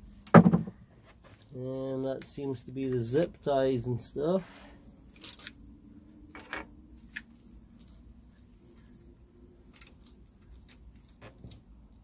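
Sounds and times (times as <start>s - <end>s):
faint steady hum: 0.0s - 12.0s
plastic connectors clicking and rattling: 9.6s - 11.6s.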